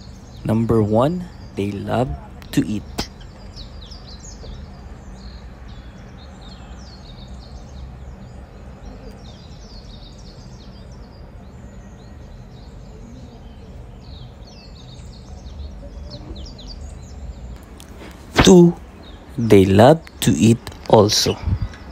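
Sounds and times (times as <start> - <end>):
budgerigars chirping: 0.0 - 7.9
low steady hum: 0.0 - 21.9.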